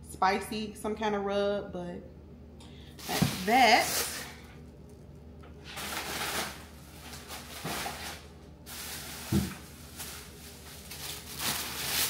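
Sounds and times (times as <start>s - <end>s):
grocery bags rustling: 3.0s - 4.6s, 5.6s - 12.0s
thump on counter: 9.3s - 9.5s.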